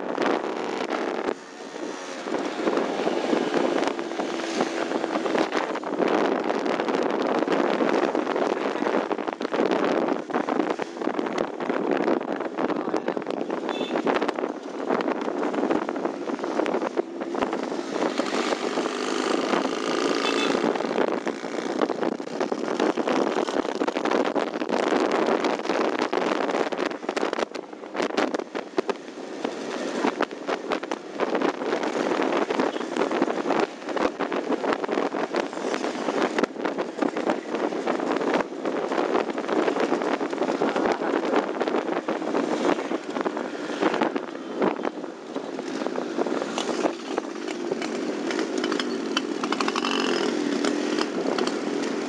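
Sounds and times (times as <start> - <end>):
wind buffeting microphone: 0.0 - 52.0
two-stroke motorcycle engine running: 13.8 - 23.9, 45.6 - 52.0.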